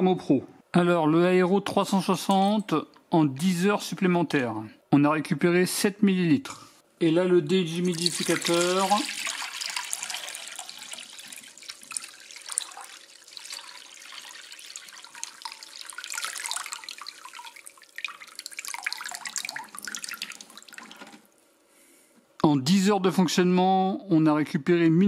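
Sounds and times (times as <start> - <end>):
water pouring into a glass bowl: 7.8 - 21.4.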